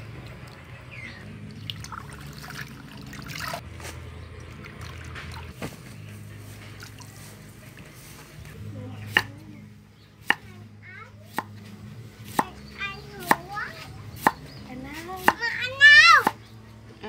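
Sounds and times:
cleaver chopping on wooden block: 9.1s - 9.3s, 11.3s - 11.6s, 12.3s - 12.6s, 13.2s - 13.5s, 14.2s - 14.5s, 15.2s - 15.5s.

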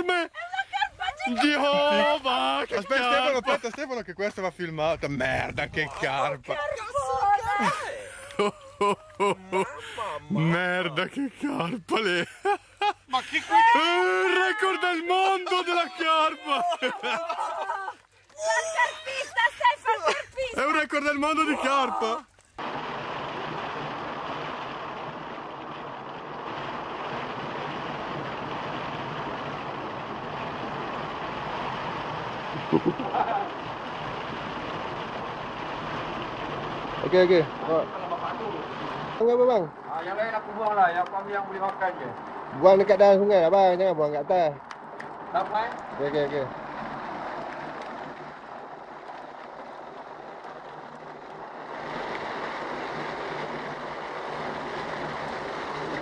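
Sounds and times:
water rushing from culvert: 1.0s - 12.3s, 13.2s - 56.0s
river water splashing around legs: 44.7s - 56.0s.

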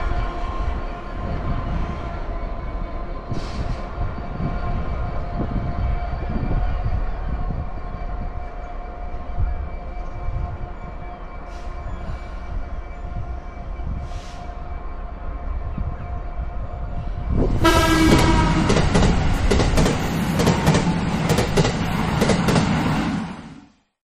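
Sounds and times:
diesel locomotive rumbling: 0.0s - 23.8s
train horn note: 17.6s - 19.0s.

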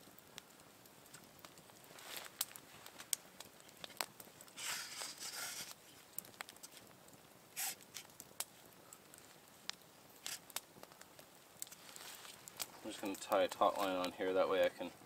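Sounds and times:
faint rustling: 1.7s - 6.9s, 11.6s - 15.0s.

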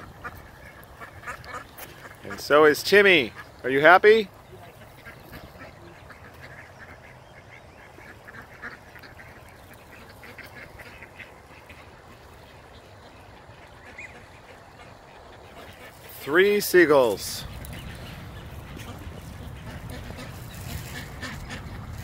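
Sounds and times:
ducks quacking: 0.0s - 22.0s
gulls crying: 12.9s - 22.0s.

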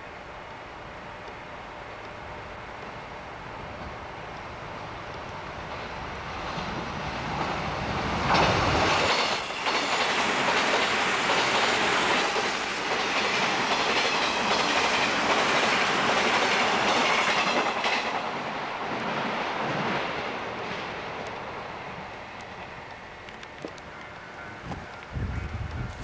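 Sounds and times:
train wheels rushing on rails: 2.0s - 26.0s.

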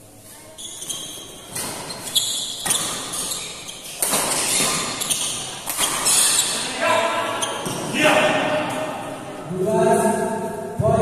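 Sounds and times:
rackets hitting shuttlecock: 1.5s - 6.4s.

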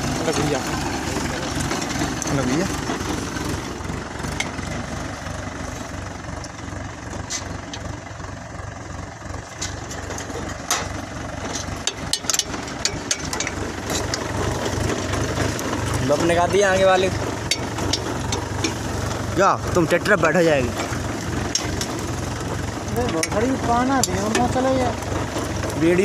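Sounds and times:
tractor engine running: 0.0s - 26.0s
sharp clicks and knocks: 9.4s - 25.9s.

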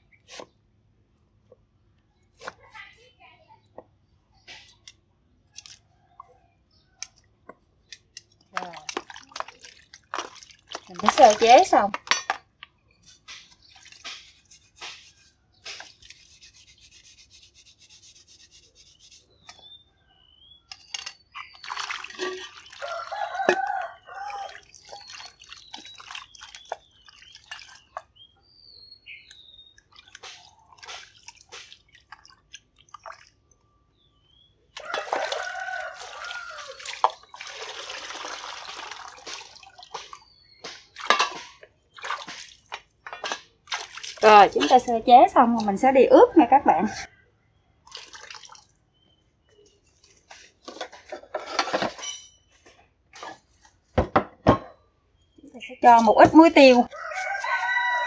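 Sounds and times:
water splashing and dripping: 8.3s - 12.2s, 13.2s - 16.8s, 20.7s - 28.2s, 29.2s - 33.6s, 34.7s - 46.6s, 47.8s - 49.0s.

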